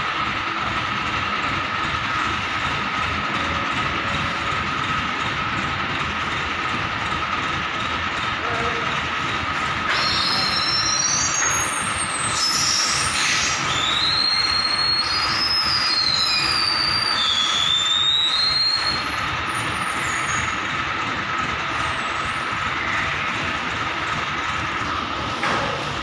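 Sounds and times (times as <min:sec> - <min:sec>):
crane hoist mechanical hum: 0:00.0 - 0:26.0
high metal squeals: 0:09.8 - 0:20.8.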